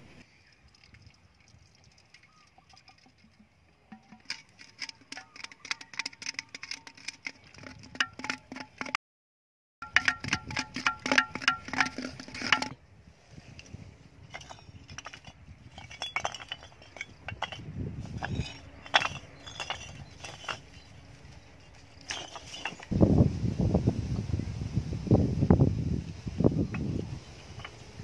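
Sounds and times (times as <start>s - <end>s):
bricks clinking and knocking: 3.9s - 8.9s, 9.8s - 12.8s, 14.3s - 22.9s, 26.7s - 28.0s.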